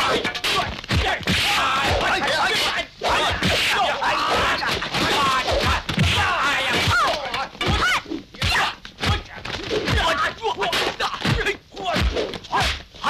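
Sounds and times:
punch and kick impacts: 0:00.0 - 0:02.3
fighters shouting and grunting: 0:00.0 - 0:13.0.

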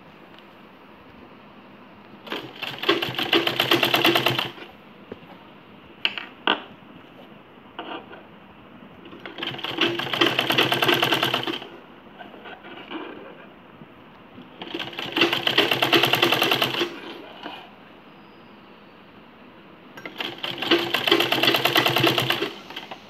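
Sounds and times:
sewing machine stitching: 0:02.2 - 0:04.7, 0:09.1 - 0:11.8, 0:14.6 - 0:17.6, 0:20.0 - 0:23.0.

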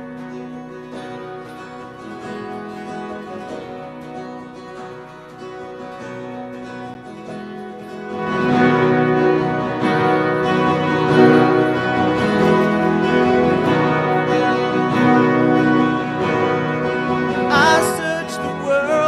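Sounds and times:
worship band playing: 0:08.3 - 0:19.0.

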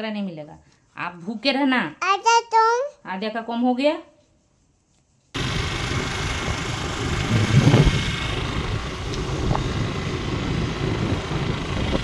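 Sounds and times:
scooter engine and road noise: 0:05.4 - 0:12.0
wind on microphone: 0:07.1 - 0:12.0.

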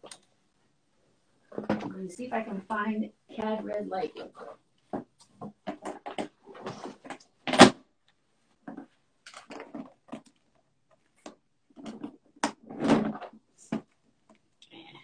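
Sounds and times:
knocks and clatters of paint tubes: 0:04.8 - 0:07.7, 0:08.6 - 0:14.4.

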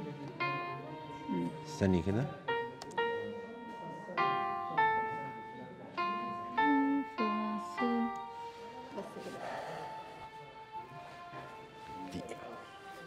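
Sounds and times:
piano notes: 0:00.0 - 0:10.4.

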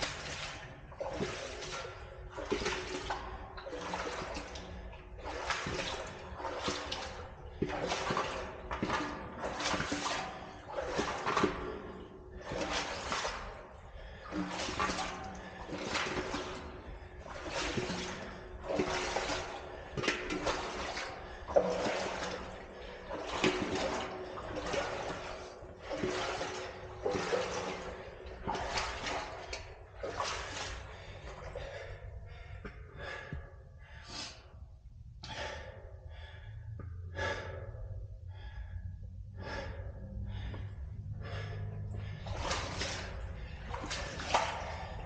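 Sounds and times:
person breathing hard: 0:30.6 - 0:45.0.

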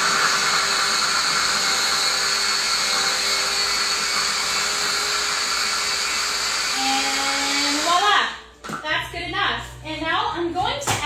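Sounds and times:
hand blender whirring: 0:00.0 - 0:08.4.

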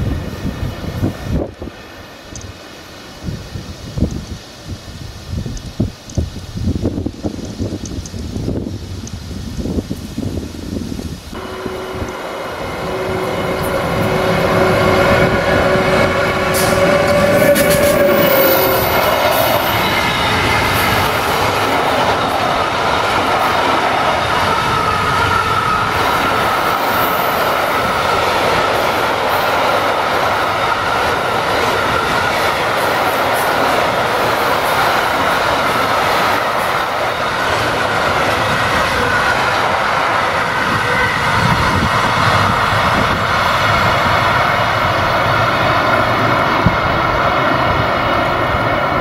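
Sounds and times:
high ringing tone: 0:11.4 - 0:20.4.

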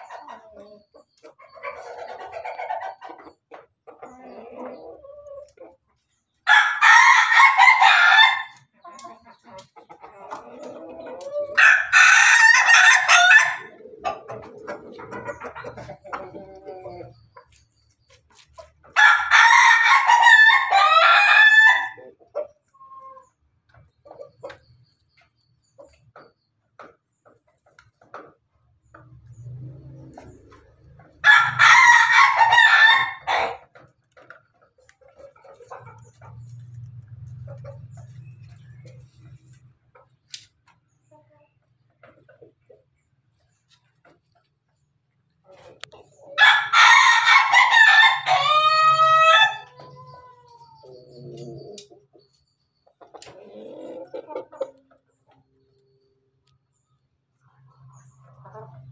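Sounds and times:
chickens clucking softly: 0:00.0 - 0:19.0, 0:19.8 - 0:46.8, 0:47.4 - 0:58.9
chickens pecking at feed: 0:08.5 - 0:19.5, 0:22.0 - 0:31.6
rooster crowing: 0:19.0 - 0:22.0, 0:31.2 - 0:33.6, 0:46.4 - 0:50.3.

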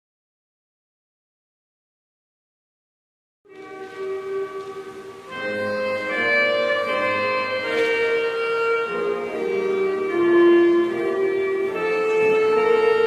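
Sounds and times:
children's choir singing a hymn: 0:03.6 - 0:13.0.

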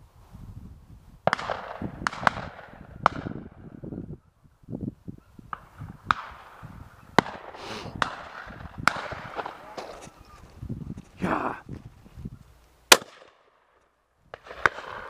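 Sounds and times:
shotgun shots: 0:01.3 - 0:03.4, 0:07.2 - 0:09.9, 0:12.9 - 0:13.6, 0:14.4 - 0:15.0.

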